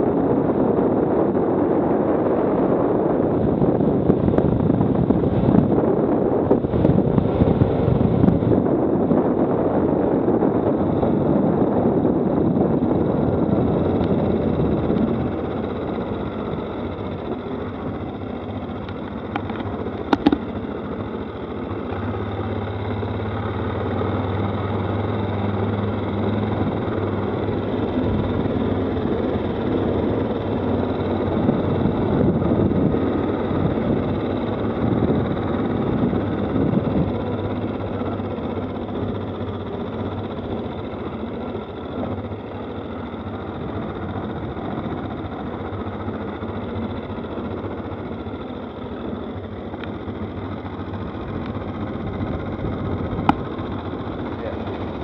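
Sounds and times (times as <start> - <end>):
quad bike engine droning: 0.0 - 55.0
sharp knocks: 20.1 - 20.4.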